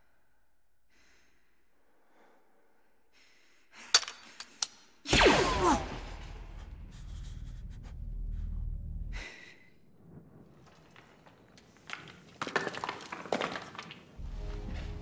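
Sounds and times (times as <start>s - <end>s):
person breathing heavily: 0.9s - 4.0s, 6.6s - 9.9s
low rumble: 5.2s - 11.0s.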